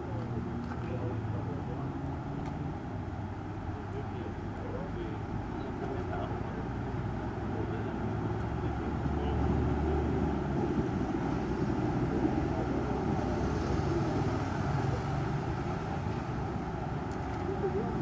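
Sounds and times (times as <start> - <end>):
vehicle engines rumbling: 0.0 - 18.0.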